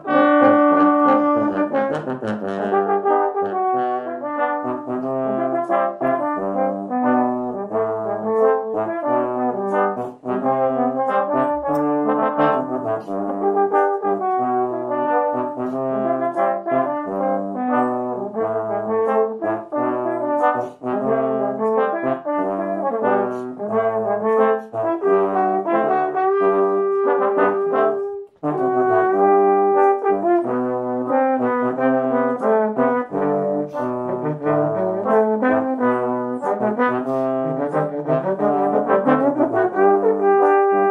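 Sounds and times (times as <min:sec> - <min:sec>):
trombone quartet playing: 0:00.0 - 0:40.9.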